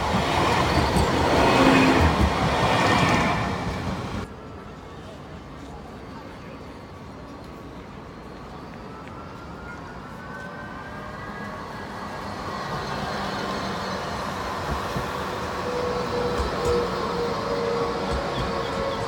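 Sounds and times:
electric tram approaching: 0:00.0 - 0:04.9, 0:06.8 - 0:19.0
tram motor whine: 0:08.4 - 0:19.0.

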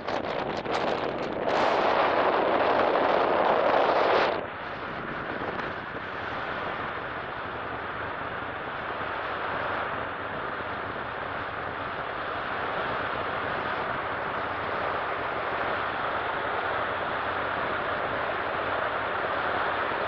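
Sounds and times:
airstream rushing: 0:00.0 - 0:20.0.

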